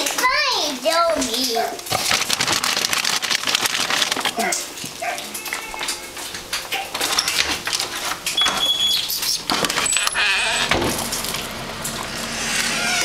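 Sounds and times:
puppy whining and yelping: 12.3 - 13.0.

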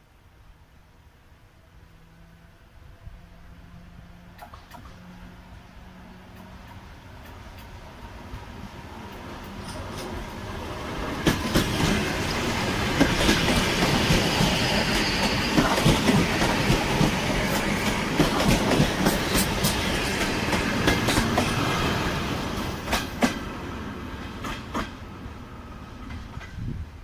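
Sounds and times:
train passing: 0.1 - 27.0
wheels clicking over rail joints: 9.1 - 10.4, 11.0 - 21.6.

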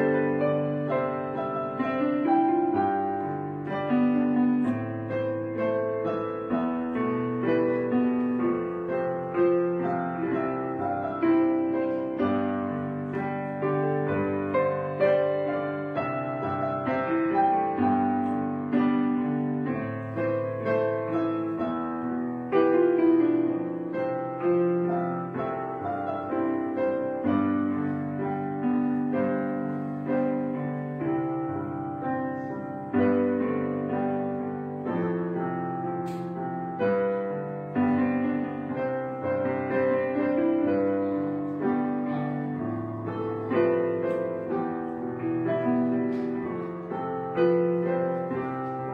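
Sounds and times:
slow piano music: 0.0 - 48.9.

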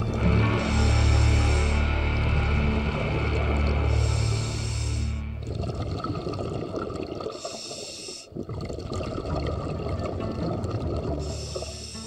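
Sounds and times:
exhaled bubbles rumbling: 0.0 - 12.0
regulator breath hissing: 0.2 - 2.8, 3.7 - 5.4, 7.3 - 8.4, 11.2 - 12.0.

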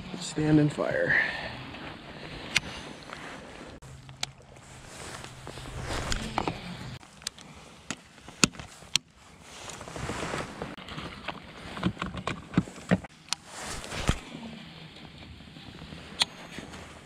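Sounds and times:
steady low hum: 0.0 - 10.8
wind and water: 0.0 - 17.0.

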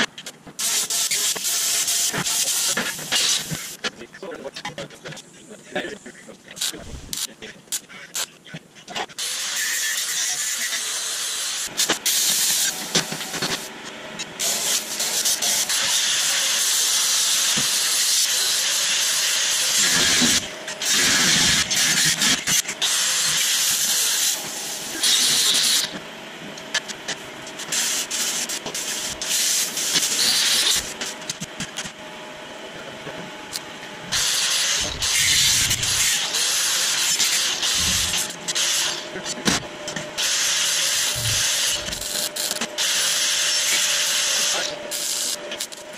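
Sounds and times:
angle grinder grinding steel: 34.1 - 39.4, 40.2 - 45.9.

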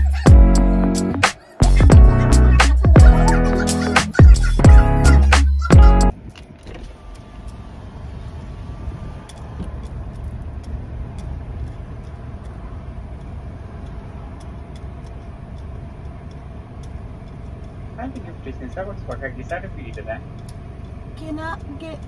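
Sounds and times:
car engine idling: 0.0 - 22.0
faint clicks: 6.3 - 7.7, 9.2 - 22.0.

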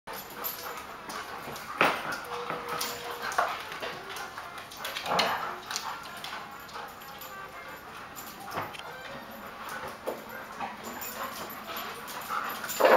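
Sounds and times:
dogs barking and yipping: 0.1 - 12.9
dog whining: 1.7 - 12.9.

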